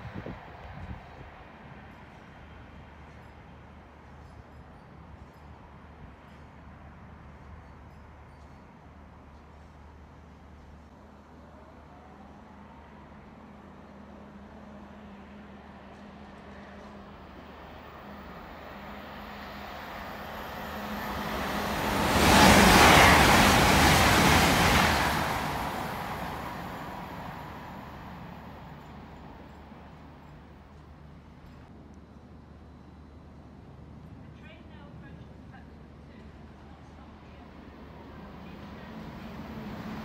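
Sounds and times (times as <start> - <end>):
train passing through station: 0.0 - 40.0
distant train rumbling: 15.4 - 31.4, 36.2 - 40.0.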